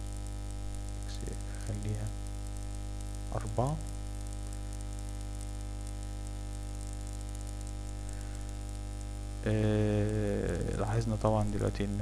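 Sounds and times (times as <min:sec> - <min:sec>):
electrical mains hum: 0:00.0 - 0:12.0
faint hiss and crackle: 0:00.0 - 0:12.0
man's voice: 0:09.4 - 0:12.0.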